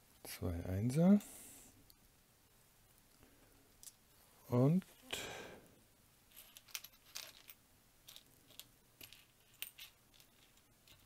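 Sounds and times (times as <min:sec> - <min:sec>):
plastic bricks clicking and rattling: 0:06.3 - 0:11.0.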